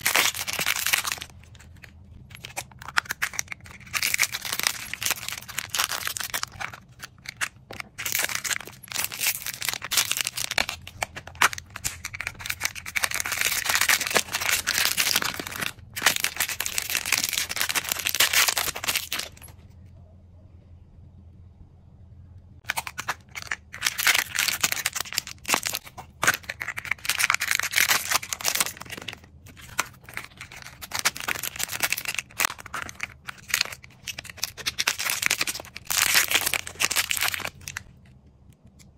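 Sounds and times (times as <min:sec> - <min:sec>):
plastic wrappers crinkling and tearing: 0:00.0 - 0:19.5, 0:22.6 - 0:37.9.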